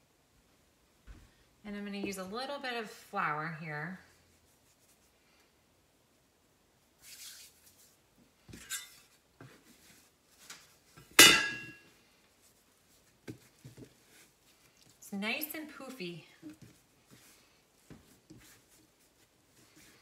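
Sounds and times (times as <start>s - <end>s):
handling rustles: 7.0s - 20.0s.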